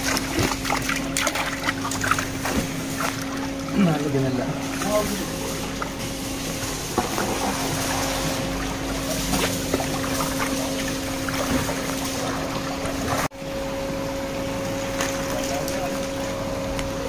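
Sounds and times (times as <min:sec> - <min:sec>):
water trickling and splashing: 0:00.0 - 0:13.3
steady motor hum: 0:00.0 - 0:17.0.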